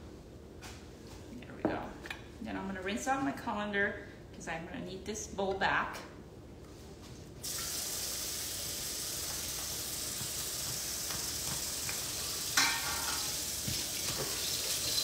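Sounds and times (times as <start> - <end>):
faucet water running into sink: 7.4 - 15.0.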